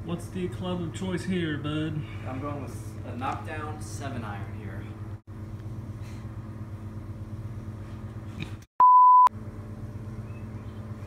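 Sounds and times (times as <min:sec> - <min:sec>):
steady low hum: 0:00.0 - 0:08.7, 0:09.3 - 0:11.0
pure tone beep: 0:08.8 - 0:09.3.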